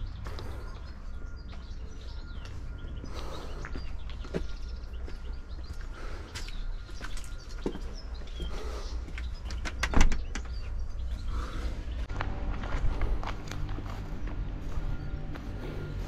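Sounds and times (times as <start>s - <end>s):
bird chirps: 0.0s - 12.1s
footsteps on stone steps: 0.2s - 9.6s, 11.0s - 16.0s.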